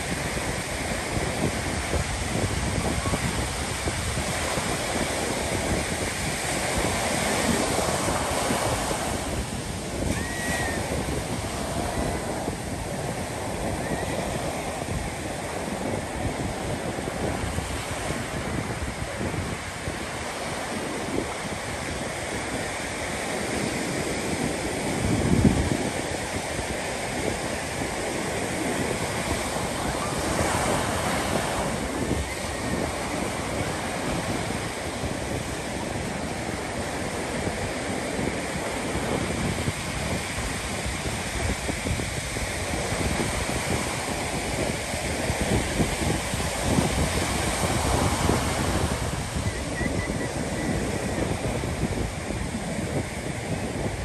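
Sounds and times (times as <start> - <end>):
ocean surf breaking on sand: 0.0 - 54.0.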